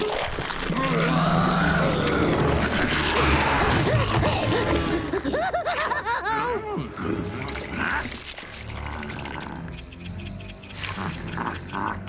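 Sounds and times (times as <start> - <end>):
cartoon monster roaring: 0.7 - 5.2
dramatic cartoon music: 0.7 - 12.0.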